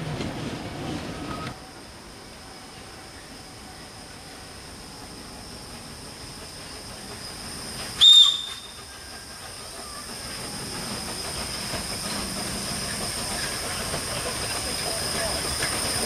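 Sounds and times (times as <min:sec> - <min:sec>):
steam locomotive running and hissing: 0:00.0 - 0:16.0
steam locomotive whistle: 0:07.9 - 0:09.3.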